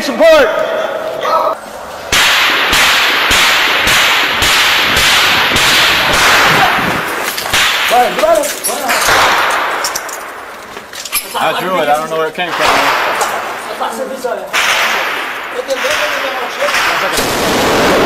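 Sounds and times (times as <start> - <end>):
loud crackling gunfire din: 2.1 - 10.4, 12.5 - 18.0
rifle shots: 2.1 - 10.5, 12.5 - 13.8, 14.5 - 18.0.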